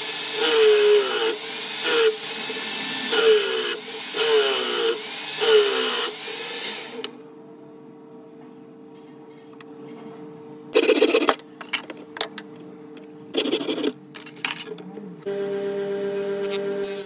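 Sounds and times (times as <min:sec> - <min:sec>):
electric disc sander humming: 0:15.2 - 0:17.0.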